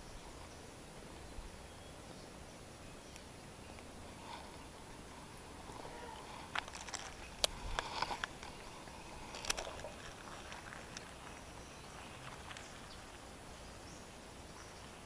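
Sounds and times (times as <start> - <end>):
quiet outdoor hiss: 0.0 - 15.0
fishing rod and reel clicks: 6.5 - 10.2.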